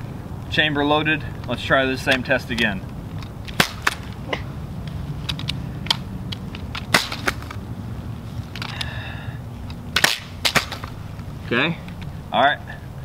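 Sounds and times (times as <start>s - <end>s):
steady low hum: 0.0s - 13.0s
shotgun clicks and knocks: 2.0s - 4.2s, 4.8s - 7.6s, 9.6s - 11.0s.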